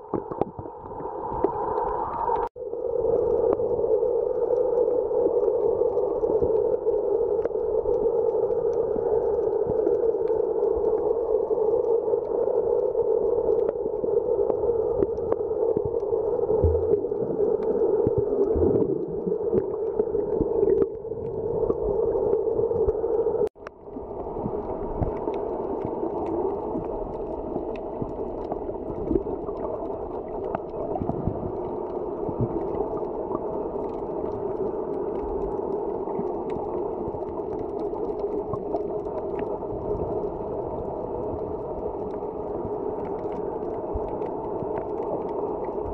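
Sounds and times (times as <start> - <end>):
muffled underwater hum: 0.0 - 45.9
faint clicks: 4.3 - 20.9.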